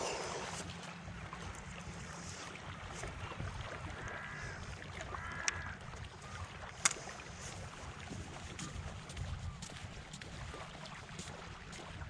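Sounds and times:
gentle shoreline water: 0.0s - 12.0s
wind on microphone: 2.8s - 10.7s.

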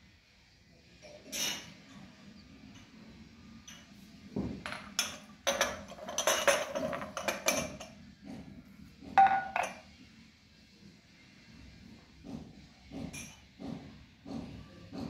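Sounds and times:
glass tumblers clinking: 4.7s - 7.9s, 9.2s - 9.8s
glass ringing: 9.2s - 9.8s
glasses set down on stone: 9.2s - 9.8s.

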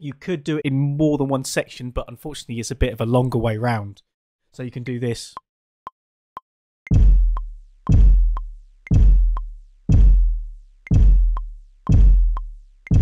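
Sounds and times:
electronic kick drum hits: 6.9s - 13.0s.

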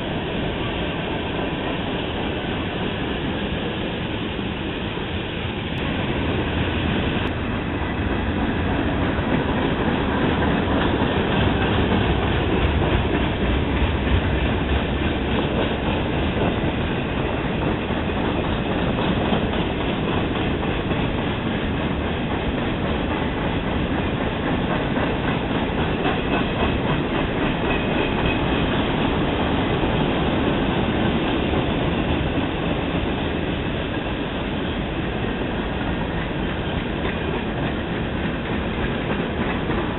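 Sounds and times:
freight train rolling past: 0.0s - 39.9s
wheels clacking over rail joints: 5.8s - 39.9s.

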